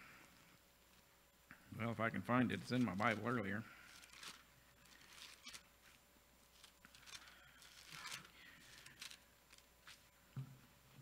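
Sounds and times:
thin pages turning: 2.5s - 10.1s.

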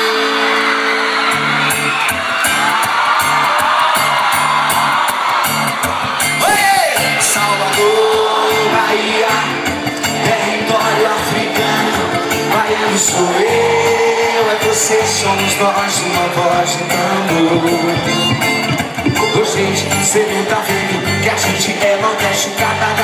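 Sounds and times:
crowd whooping: 0.0s - 22.9s
live band playing: 0.0s - 23.0s.

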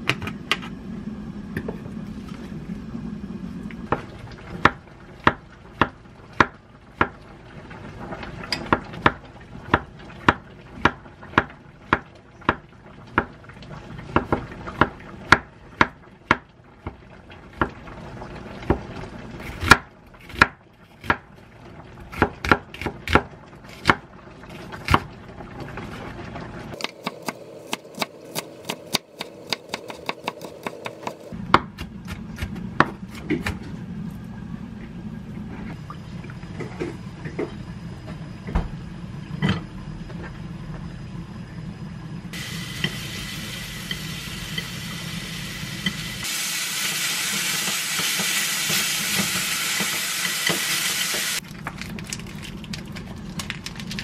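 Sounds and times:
knife chopping on wooden board: 26.8s - 33.6s.

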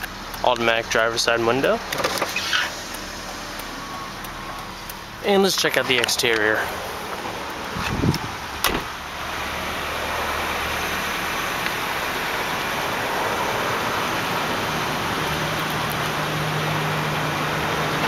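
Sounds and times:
car engine idling: 0.0s - 18.0s
car door thumping shut: 8.6s - 9.0s.

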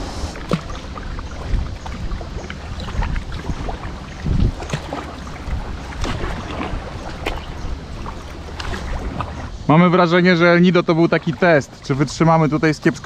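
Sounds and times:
paddle splashing and dripping water: 0.0s - 9.6s, 10.8s - 13.0s
wind rumble on microphone: 0.0s - 9.7s.

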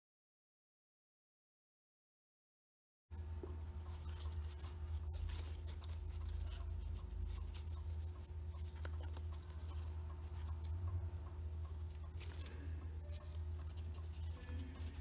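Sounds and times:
steady low hum: 3.1s - 15.0s
folded paper rustling and clicking: 3.9s - 10.8s, 11.8s - 15.0s.

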